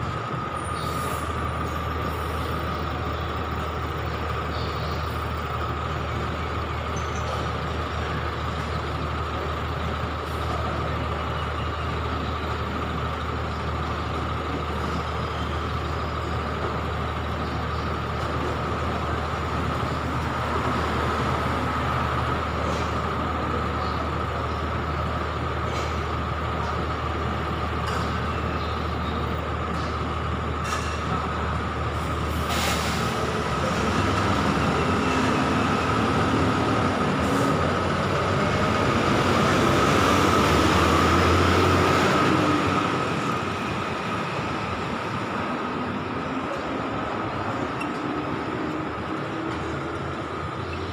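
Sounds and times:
bus engine idling: 0.0s - 50.9s
air brake hiss: 32.3s - 33.2s.

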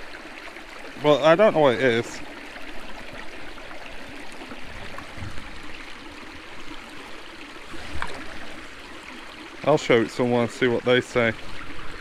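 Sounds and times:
running water rushing: 0.0s - 12.0s.

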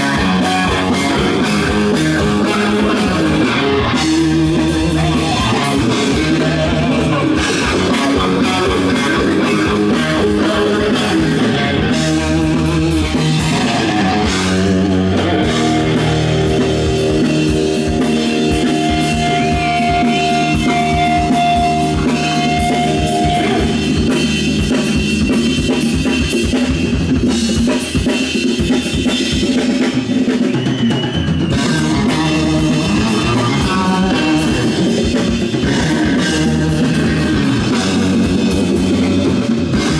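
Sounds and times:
guitar holding a long note: 0.0s - 24.1s
live rock band playing: 0.0s - 39.9s.

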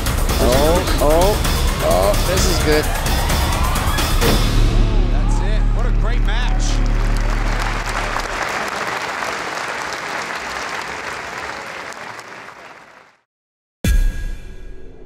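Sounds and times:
background music: 0.0s - 8.4s
audience applauding: 6.0s - 13.2s.

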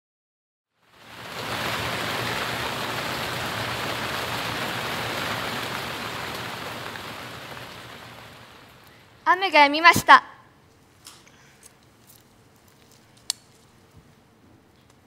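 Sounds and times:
rainfall hiss: 0.8s - 10.2s.

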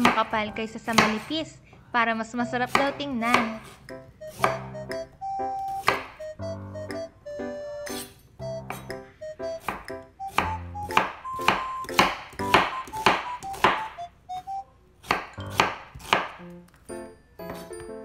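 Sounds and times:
knife chopping on cutting board: 0.0s - 1.4s, 2.6s - 6.3s, 7.8s - 8.1s, 8.7s - 9.0s, 9.6s - 14.0s, 15.0s - 16.5s
background music: 0.0s - 1.5s, 2.1s - 18.0s.

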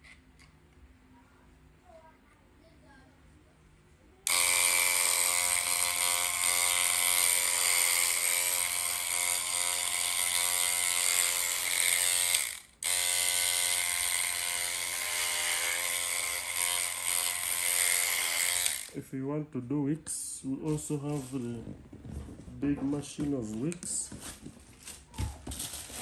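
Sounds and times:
electric hair machine buzzing: 4.2s - 19.0s.

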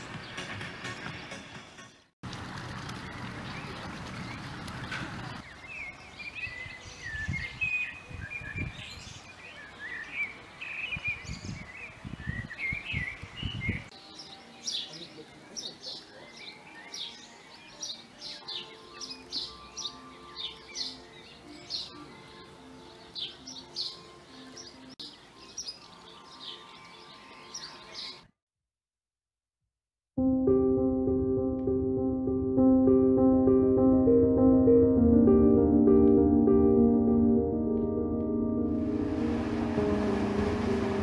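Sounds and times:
songbirds chirping and singing: 5.3s - 28.3s
faint music: 13.9s - 28.2s, 30.2s - 41.0s.

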